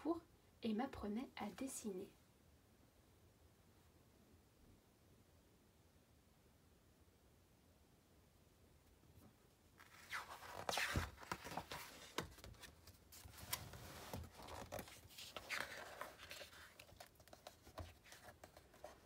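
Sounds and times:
paper page turning: 9.8s - 19.0s.

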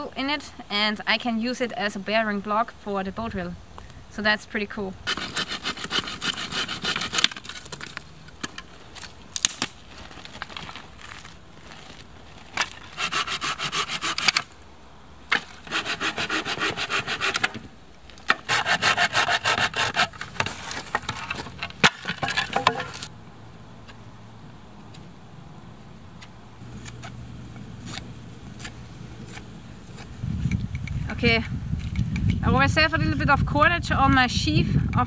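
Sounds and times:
saw cutting dry branch: 5.0s - 11.3s, 12.5s - 14.6s, 15.3s - 23.1s, 26.6s - 33.4s
wood knocks: 21.8s - 23.0s.

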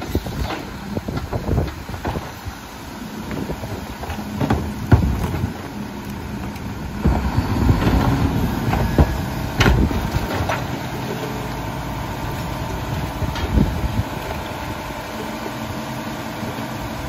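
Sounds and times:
cart knocks: 0.4s - 2.4s, 3.3s - 5.8s, 7.0s - 10.8s.

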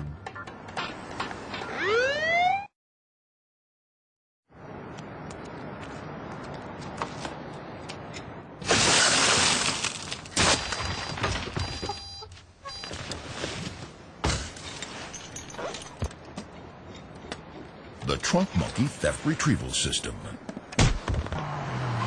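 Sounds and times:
glass shattering: 8.6s - 11.6s, 14.2s - 16.0s.

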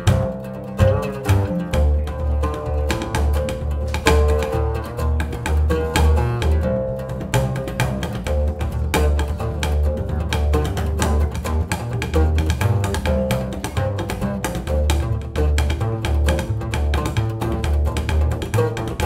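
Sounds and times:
oud picked: 0.0s - 19.0s
plucked double bass: 0.0s - 19.0s.

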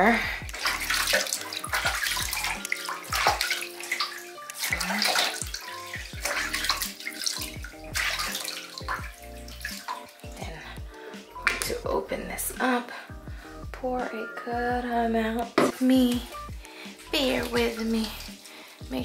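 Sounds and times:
bathwater splashing in a tub: 0.0s - 11.8s, 16.1s - 19.0s
background music: 0.0s - 19.0s.

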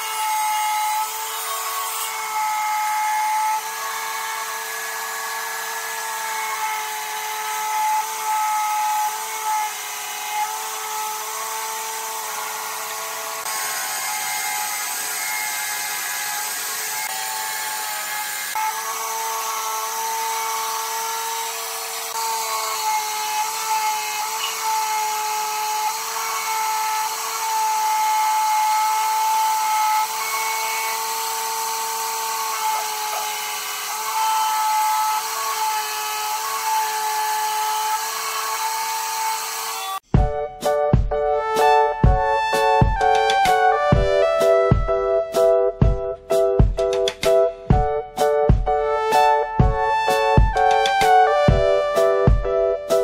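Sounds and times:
power tool motor whining: 0.0s - 40.1s.

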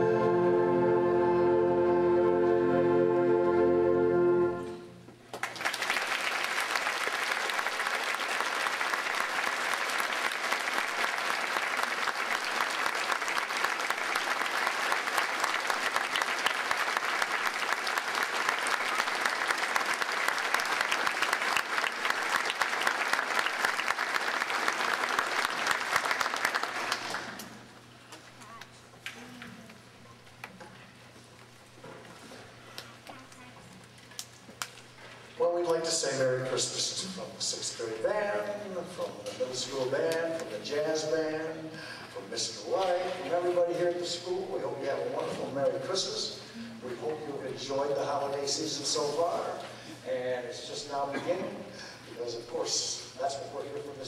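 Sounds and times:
audience applause: 5.3s - 27.7s.

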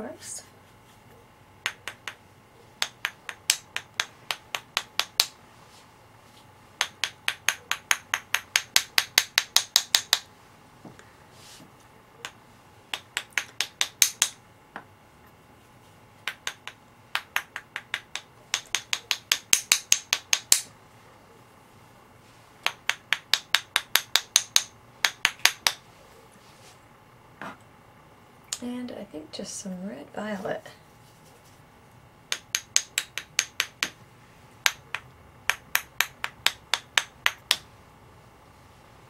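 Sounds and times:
rapid sharp taps: 1.6s - 2.2s, 2.8s - 5.4s, 6.8s - 10.3s, 12.2s - 14.4s, 16.2s - 20.7s, 22.6s - 25.8s, 32.3s - 34.0s, 34.6s - 37.7s.

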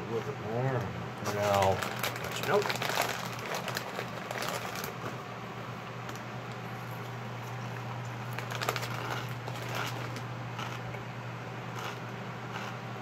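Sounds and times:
chips crunching: 1.2s - 5.0s, 7.9s - 11.0s
chip bag rustling: 1.2s - 5.2s, 8.2s - 10.8s.

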